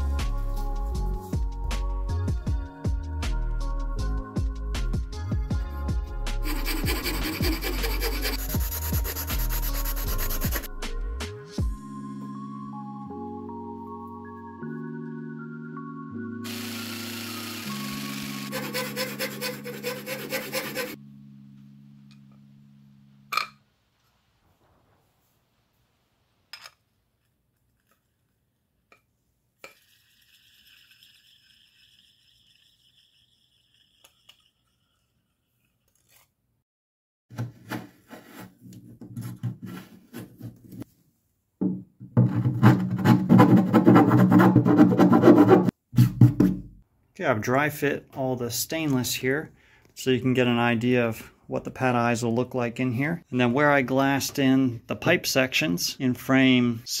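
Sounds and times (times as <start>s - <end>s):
knife scraping strokes: 6.4s - 10.7s, 18.3s - 21.0s, 35.9s - 36.3s
jigsaw cutting fiberglass: 6.5s - 10.7s, 16.4s - 21.0s.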